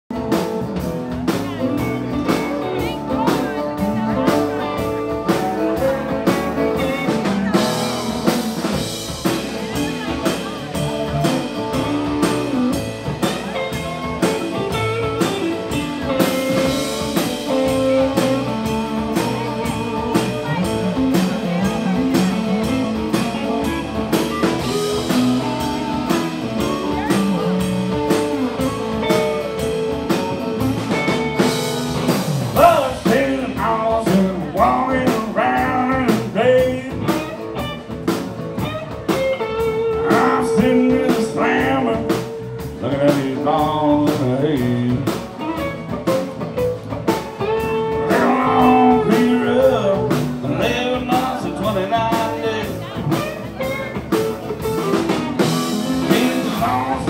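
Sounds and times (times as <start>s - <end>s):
electric guitars: 0.1s - 57.0s
steady drumbeat: 0.1s - 57.0s
man singing into microphone: 32.6s - 37.3s, 39.9s - 45.2s, 48.0s - 53.0s, 55.8s - 57.0s.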